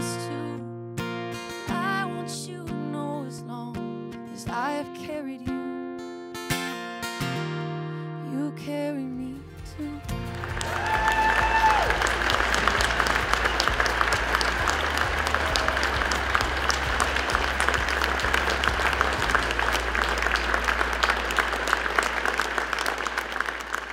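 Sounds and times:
large audience applauding: 10.2 - 23.9.

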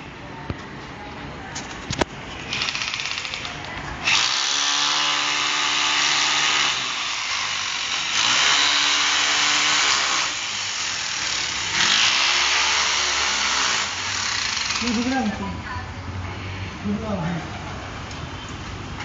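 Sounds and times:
electric drill drilling into wall: 4.0 - 15.2.

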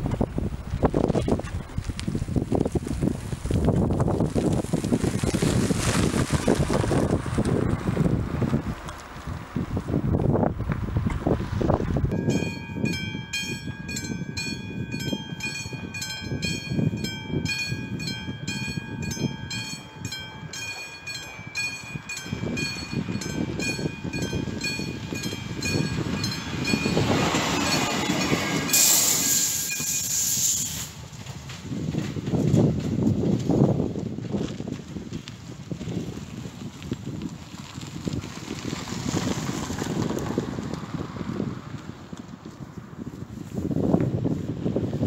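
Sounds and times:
train passing: 11.0 - 33.7
level crossing bell ringing: 12.1 - 28.9.

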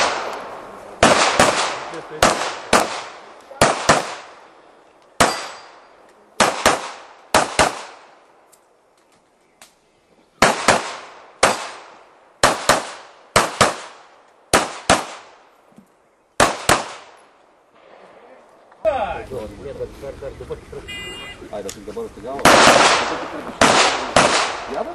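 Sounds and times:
gunshots with echo: 1.0 - 4.4, 6.4 - 8.1, 10.4 - 15.3, 22.4 - 24.7.

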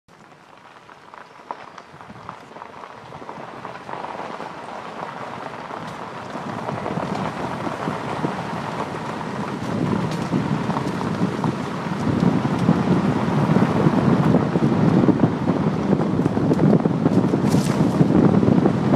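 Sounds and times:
car tyres on gravel road: 0.1 - 18.9.

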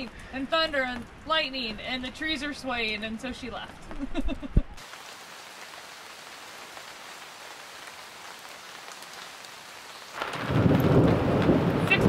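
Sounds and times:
steady rain hiss: 0.0 - 12.0
faint raindrop ticks: 8.4 - 12.0.

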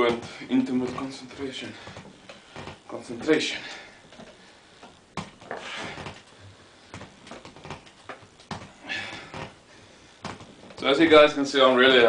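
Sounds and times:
man breathing heavily: 1.4 - 2.8, 3.4 - 7.4, 8.6 - 10.6.

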